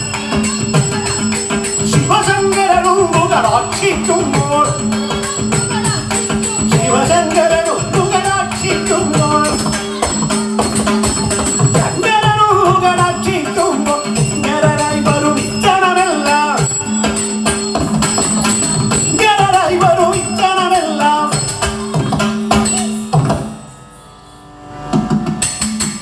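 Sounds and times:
person singing: 0:00.0 - 0:17.2
drum beats: 0:00.0 - 0:23.7, 0:24.9 - 0:26.0
jingling cymbal strokes: 0:00.0 - 0:24.5.

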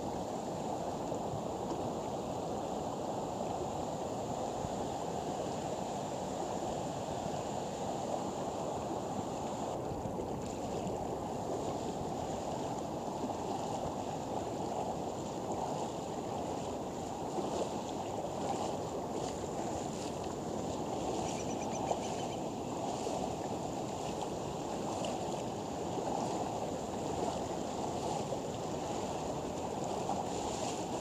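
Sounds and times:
river water rushing: 0:00.0 - 0:31.0
wind on microphone: 0:00.0 - 0:31.0
legs wading through water: 0:08.2 - 0:31.0.

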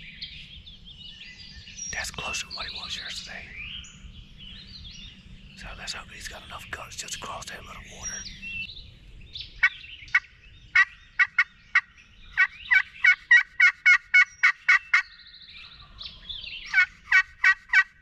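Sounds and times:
turkey call yelping: 0:12.4 - 0:15.0, 0:16.7 - 0:17.9.

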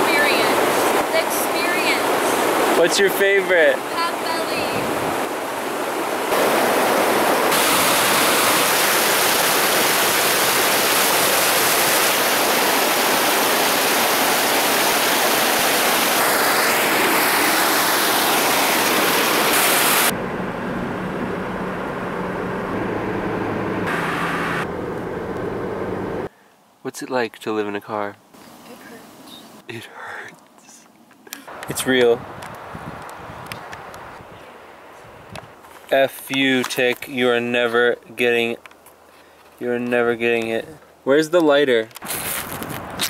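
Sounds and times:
rushing stream water: 0:00.0 - 0:20.2
car road noise with low hum: 0:20.1 - 0:26.3.

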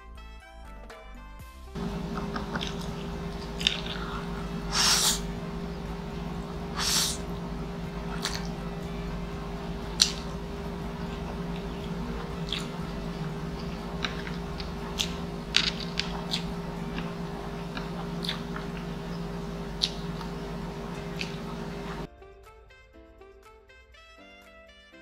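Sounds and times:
close chewing of noodles: 0:01.8 - 0:22.1
steady low hum: 0:01.8 - 0:22.1
wet mouth clicks and smacks: 0:01.8 - 0:22.1.

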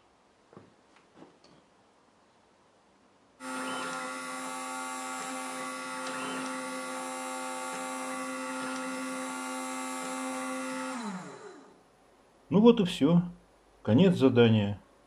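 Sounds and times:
drilling spindle whine: 0:03.4 - 0:11.8.

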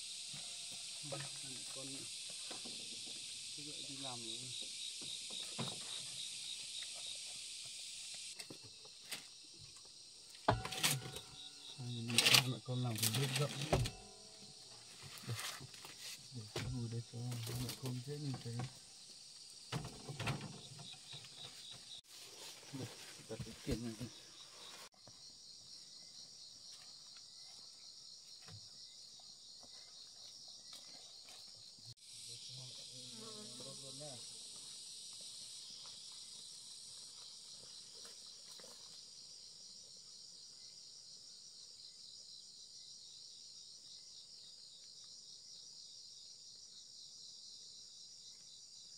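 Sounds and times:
high insect drone: 0:00.0 - 0:48.9
sharp knock with ringing tone: 0:10.5 - 0:11.4.

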